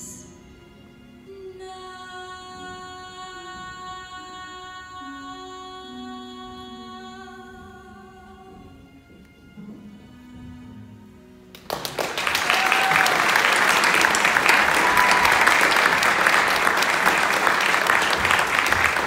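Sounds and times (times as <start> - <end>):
audience applause: 11.6 - 19.0.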